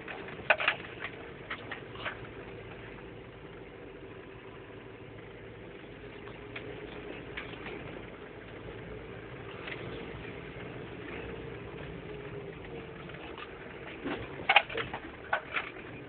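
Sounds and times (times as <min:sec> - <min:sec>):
sharp knocks and rattles: 0:00.0 - 0:02.4, 0:13.2 - 0:16.0
diesel engine running: 0:00.0 - 0:16.0.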